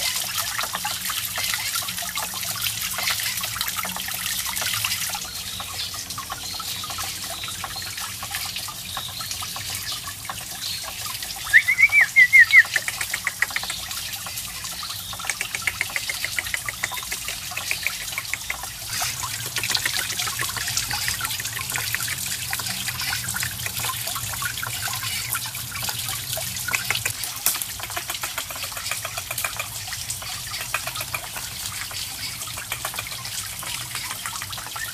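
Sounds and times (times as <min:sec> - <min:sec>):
water trickling and splashing: 0:00.0 - 0:34.9
high chirping calls: 0:11.5 - 0:13.8.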